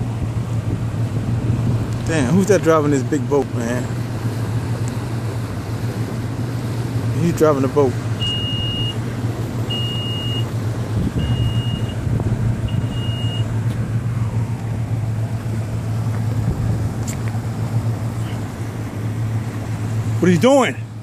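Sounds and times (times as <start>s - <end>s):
motorboat engine droning: 0.0s - 21.0s
high electronic beep: 8.2s - 9.0s, 11.2s - 12.0s, 12.7s - 13.5s.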